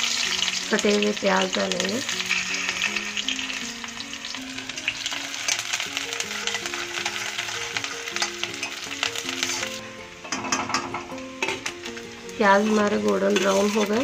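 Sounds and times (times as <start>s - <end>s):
onions sizzling in oil: 0.0s - 14.0s
soft background music: 0.0s - 14.0s
steel spatula scraping pan: 2.1s - 3.5s, 9.4s - 10.9s, 12.5s - 14.0s.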